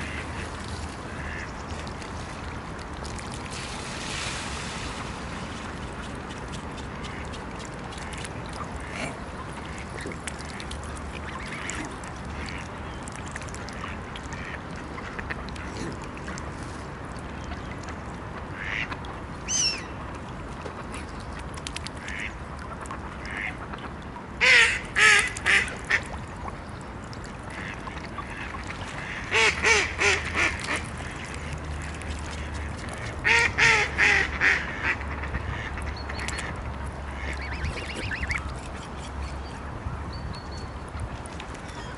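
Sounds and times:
waterfowl calling: 37.1 - 38.5.

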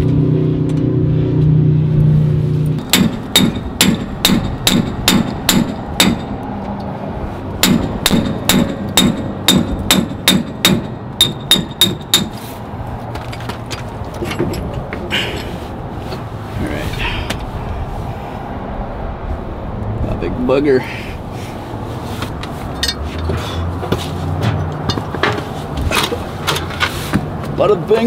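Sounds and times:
hammer striking metal: 2.8 - 6.4, 7.6 - 12.4.

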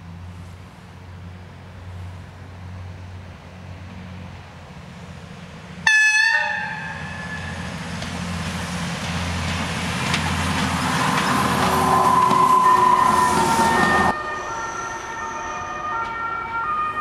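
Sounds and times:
railbus diesel engine running: 0.0 - 17.0
train horn blast: 5.8 - 7.6, 11.9 - 16.0.

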